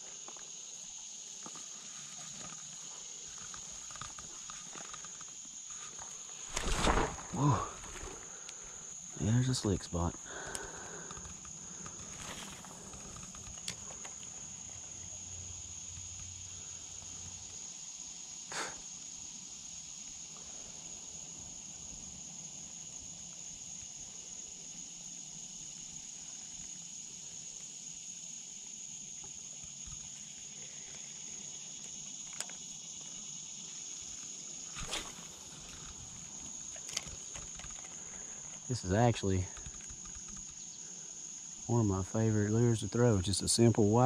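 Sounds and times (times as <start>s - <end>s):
insects droning high-pitched: 0.0s - 44.0s
faint clicks: 10.1s - 14.3s, 35.6s - 38.7s, 39.4s - 40.7s.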